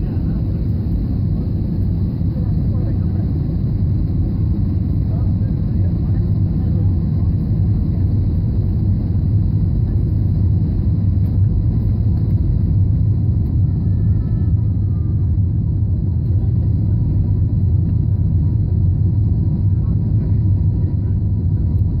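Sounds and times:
airplane cabin rumble: 0.0s - 22.0s.

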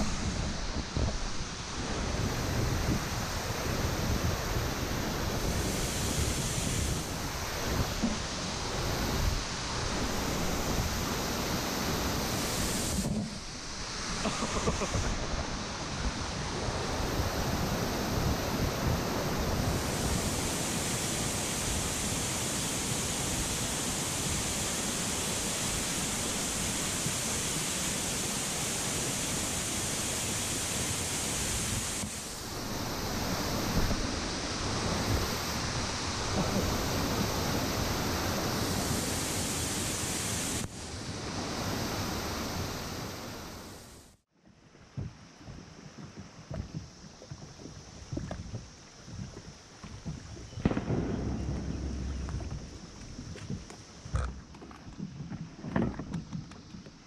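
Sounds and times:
waterfall rushing onto rocks: 0.0s - 44.2s.

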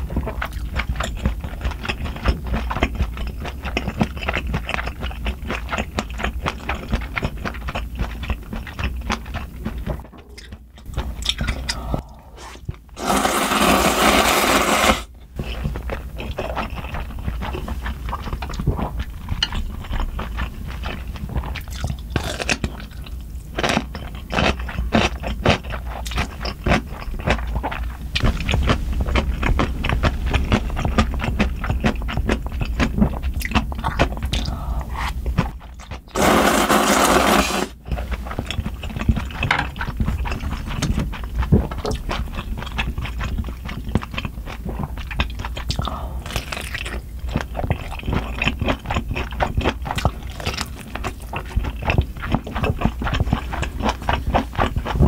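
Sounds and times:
wet chewing with mouth clicks: 0.0s - 13.1s, 14.8s - 36.2s, 37.5s - 55.0s
loud slurp: 11.4s - 15.1s, 36.2s - 37.8s.

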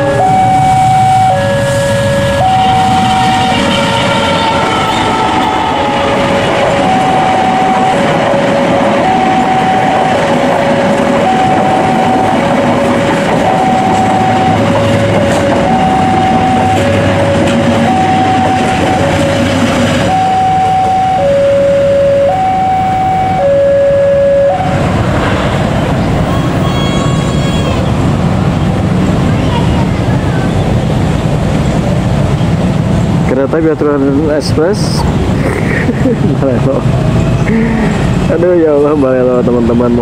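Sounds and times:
level-crossing two-tone alarm: 0.0s - 24.9s
train coaches rumbling past: 0.0s - 40.0s.

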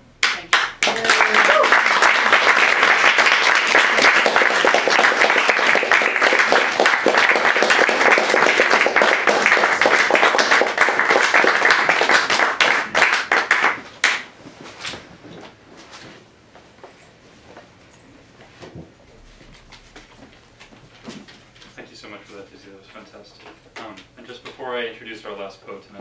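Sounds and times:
audience applauding: 0.2s - 14.2s.

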